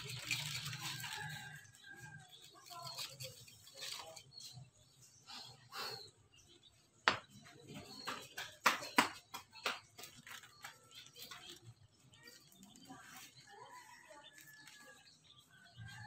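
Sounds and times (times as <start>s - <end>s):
coconut husk rustling: 0.0s - 4.6s.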